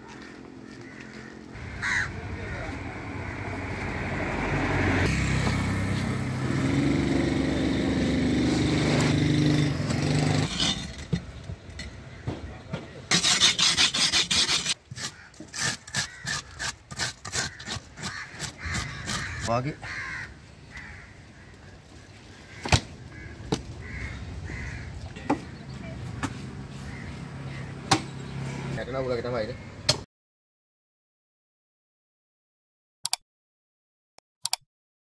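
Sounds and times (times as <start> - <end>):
knife sharpened on whetstone: 13.1 - 14.8
knife scraping fish scales: 13.1 - 19.4.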